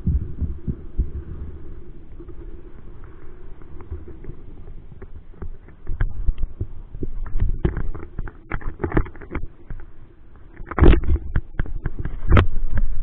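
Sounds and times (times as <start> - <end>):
low rumble: 0.0 - 8.4
muffled water sloshing: 0.0 - 13.0.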